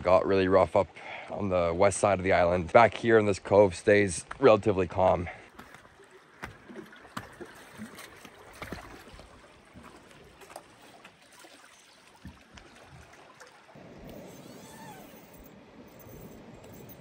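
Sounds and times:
water lapping against rocks: 0:05.0 - 0:17.0.

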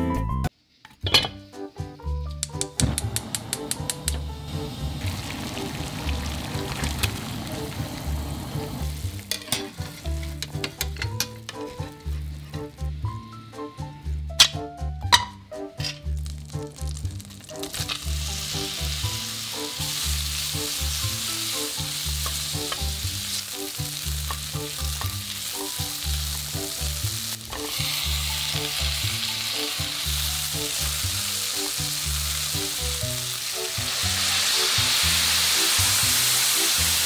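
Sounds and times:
background music with bass line: 0:00.0 - 0:00.5, 0:01.3 - 0:37.0
vegetables sizzling in a frying pan: 0:03.0 - 0:12.9, 0:15.8 - 0:37.0
water poured into hot pan: 0:03.1 - 0:10.1, 0:16.1 - 0:37.0.

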